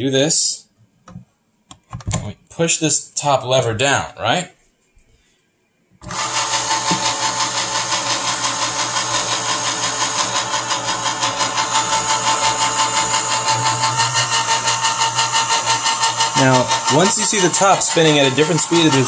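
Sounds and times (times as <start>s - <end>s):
electric can opener motor: 6.0s - 19.0s.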